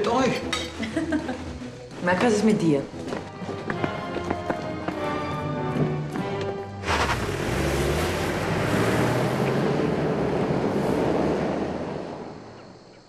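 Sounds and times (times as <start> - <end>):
tyre noise on dirt: 5.8 - 9.9
car engine pulling hard: 6.8 - 12.9.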